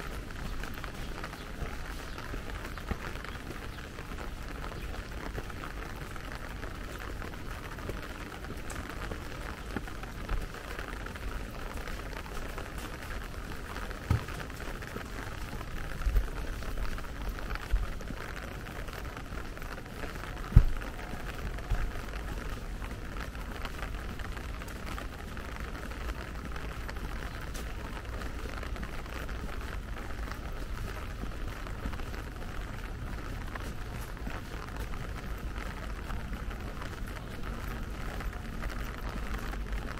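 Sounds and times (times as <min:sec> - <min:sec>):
light rain on wet paving: 0:00.0 - 0:39.9.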